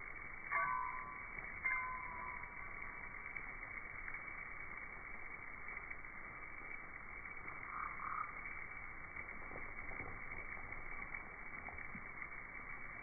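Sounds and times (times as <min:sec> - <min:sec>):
bat swarm croaking chatter: 0:07.5 - 0:08.6.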